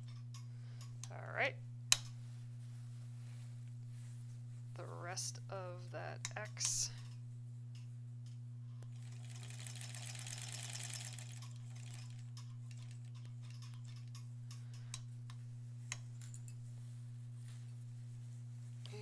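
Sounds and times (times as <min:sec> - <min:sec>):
steady low hum: 0:00.0 - 0:19.0
sewing machine stitching: 0:08.9 - 0:13.7.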